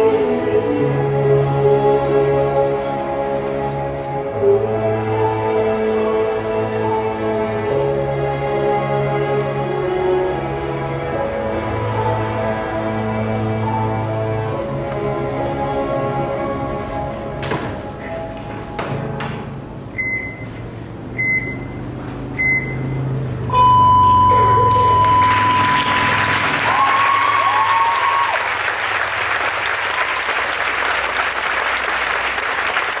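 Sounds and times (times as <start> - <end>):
audience applause: 24.6 - 33.0.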